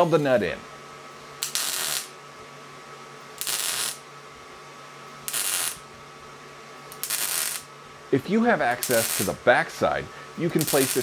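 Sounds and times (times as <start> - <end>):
welding arc bursts: 1.4 - 2.2, 3.4 - 4.1, 5.2 - 5.8, 6.9 - 7.7, 8.6 - 11.0.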